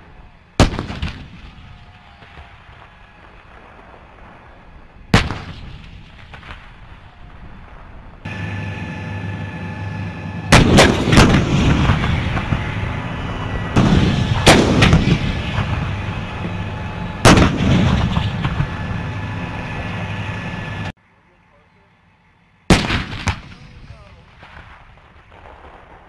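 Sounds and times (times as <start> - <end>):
echoing cracks and rumble: 0.6 - 8.3, 10.5 - 20.7, 22.7 - 26.0
howitzer firing blasts: 0.6 - 20.9, 22.7 - 26.0
vehicle engine humming: 7.0 - 22.8.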